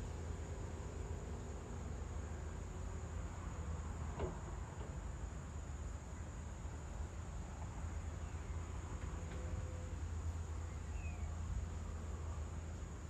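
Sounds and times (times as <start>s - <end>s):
insects chirring: 9.6s - 13.0s.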